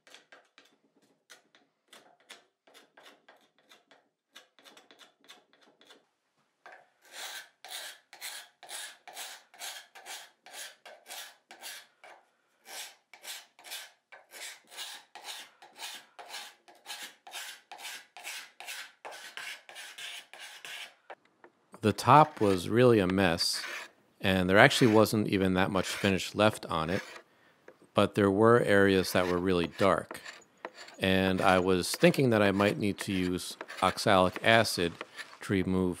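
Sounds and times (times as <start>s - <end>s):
card scraper scraping wood finish: 0.0s - 6.0s, 7.0s - 21.2s, 21.9s - 27.8s, 28.5s - 35.8s.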